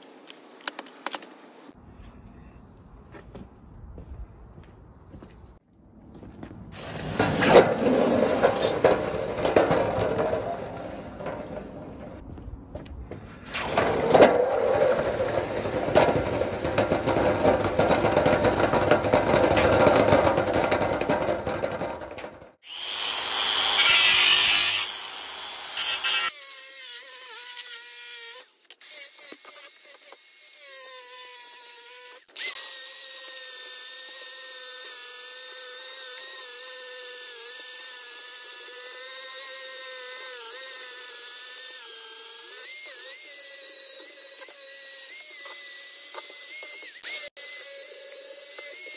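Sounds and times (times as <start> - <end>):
rough scraping: 6.7 - 12.2, 13.2 - 22.2
angle grinder cutting metal: 22.6 - 48.9.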